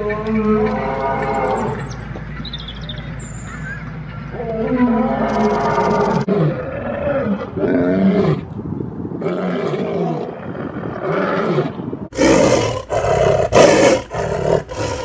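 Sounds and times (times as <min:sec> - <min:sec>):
lions roaring: 0:11.0 - 0:15.0.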